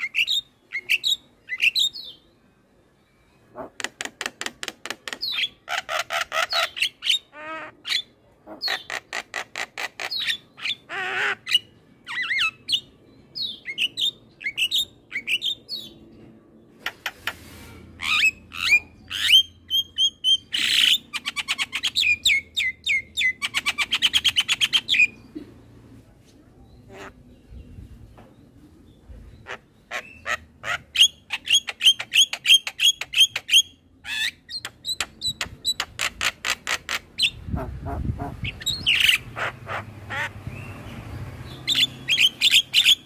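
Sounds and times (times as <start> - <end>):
bird chattering song: 0.0 - 2.3, 3.5 - 16.1, 18.0 - 25.4, 26.6 - 43.0.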